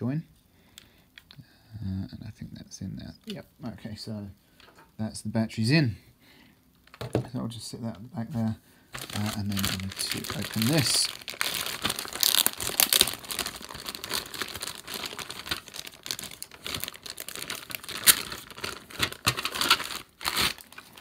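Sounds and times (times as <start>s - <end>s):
plastic bag crinkling: 9.0s - 21.0s.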